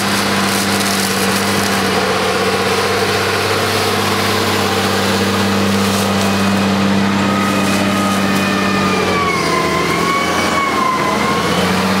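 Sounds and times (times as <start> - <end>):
high wavering whine: 0.0 - 12.0
tractor engine running: 0.0 - 12.0.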